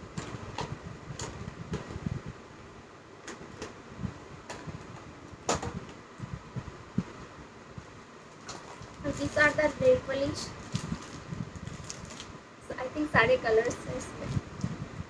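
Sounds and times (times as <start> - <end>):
plastic pouch clicks and crinkles: 10.6 - 12.4.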